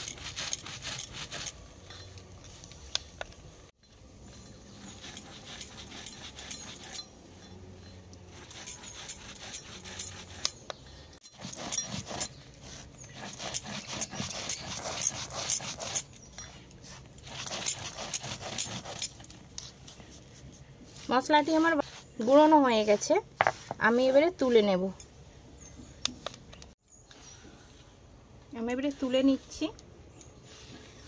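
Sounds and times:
stone grinding spices: 0:03.9 - 0:19.8.

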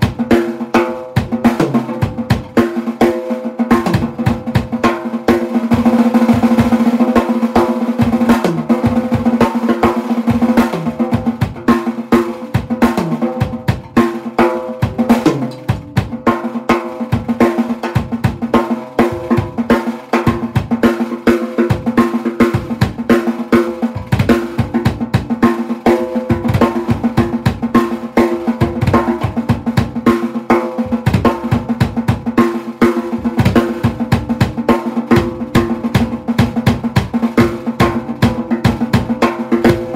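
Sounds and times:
bass drum hits: 0:17.0 - 0:20.8.

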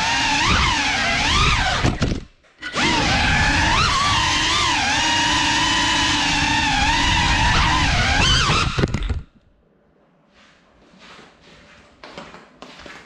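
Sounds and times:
drone motors whining: 0:00.0 - 0:09.3.

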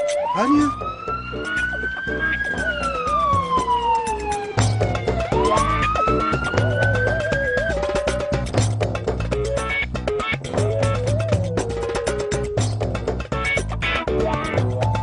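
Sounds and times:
ambulance siren wailing: 0:00.0 - 0:08.6, 0:10.6 - 0:12.6
background music with steady beat: 0:00.0 - 0:15.0.

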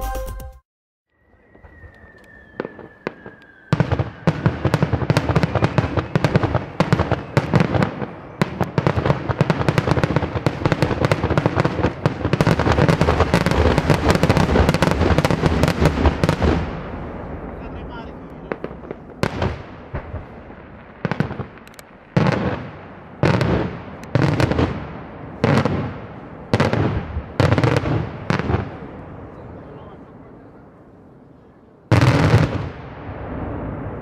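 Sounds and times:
firework whistle: 0:01.1 - 0:09.0
firework bangs and crackling: 0:01.2 - 0:30.5, 0:31.9 - 0:34.0.

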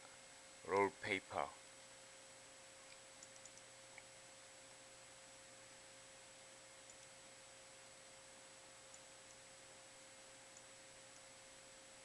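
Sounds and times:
faint electrical hum: 0:00.0 - 0:12.0
soft clicks: 0:02.8 - 0:04.8, 0:06.3 - 0:07.2, 0:10.5 - 0:11.3.

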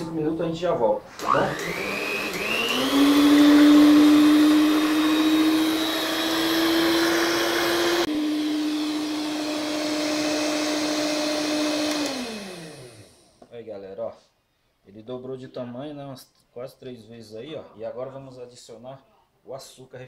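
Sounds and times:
stand mixer motor whine: 0:01.2 - 0:13.4.

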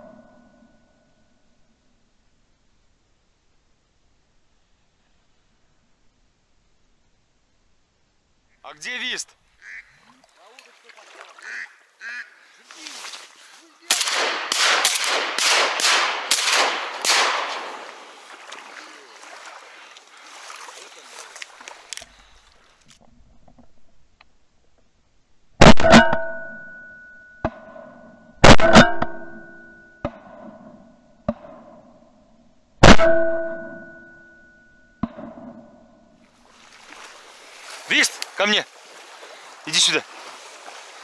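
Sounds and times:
shotgun shots: 0:13.9 - 0:18.2, 0:28.4 - 0:28.9, 0:32.8 - 0:33.3
metallic ring: 0:26.0 - 0:30.1, 0:33.0 - 0:35.0
faint sharp cracks: 0:37.7 - 0:38.4.

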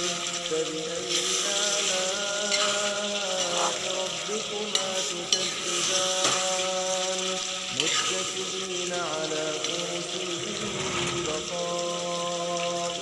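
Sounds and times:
curry sizzling in a pan: 0:00.0 - 0:13.0
metal spoon scraping pan: 0:10.4 - 0:11.6.

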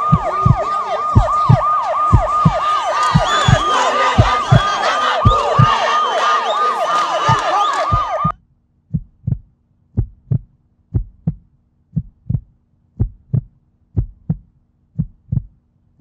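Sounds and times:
heartbeat low thumps: 0:00.0 - 0:05.8, 0:07.9 - 0:15.6
falling siren wail: 0:00.0 - 0:08.3
loud crowd noise: 0:00.0 - 0:08.3.

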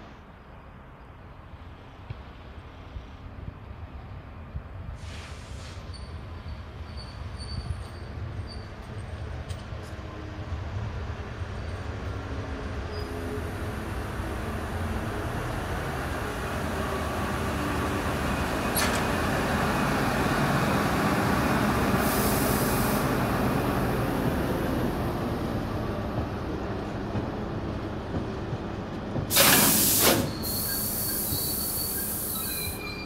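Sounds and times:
train wheels rolling on rails: 0:05.0 - 0:33.0
high wheel squeals: 0:05.9 - 0:09.2, 0:29.9 - 0:33.0.

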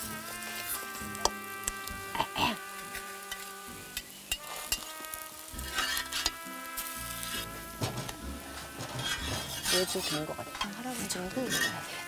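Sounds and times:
pancakes sizzling in oil: 0:00.0 - 0:12.0
metal spatula scraping pan: 0:02.9 - 0:12.0.

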